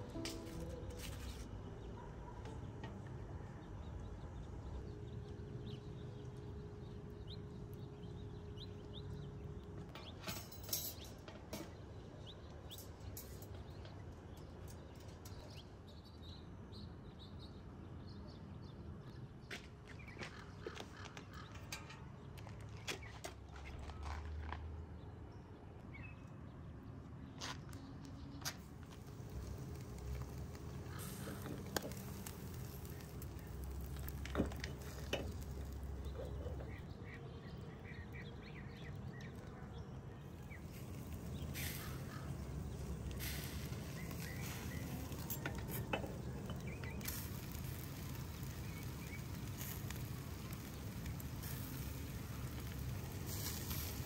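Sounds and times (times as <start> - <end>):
metal grill basket clinking: 9.9 - 11.8, 12.7 - 15.6, 29.0 - 36.9, 40.7 - 54.0.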